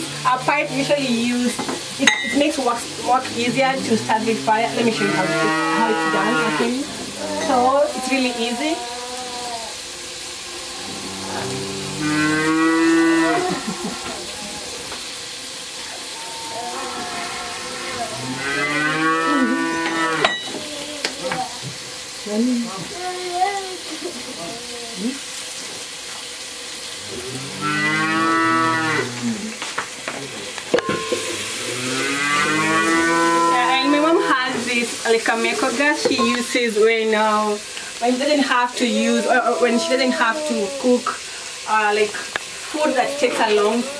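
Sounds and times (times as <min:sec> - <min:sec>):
cow mooing: 0:02.2 - 0:14.9, 0:15.8 - 0:20.6, 0:27.0 - 0:29.5, 0:30.9 - 0:34.7, 0:42.7 - 0:43.9.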